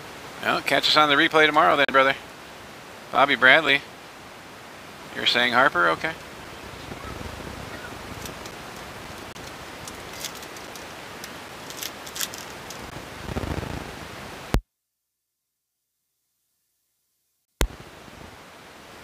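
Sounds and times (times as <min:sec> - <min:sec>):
steady background hiss: 0:00.0 - 0:14.6, 0:17.6 - 0:19.0
packaging crinkling: 0:09.4 - 0:12.9.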